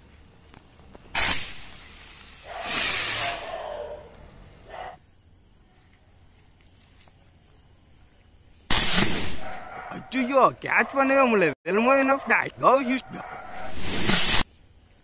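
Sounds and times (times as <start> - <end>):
firework hissing: 1.0 - 3.6, 8.7 - 9.4, 13.5 - 14.5.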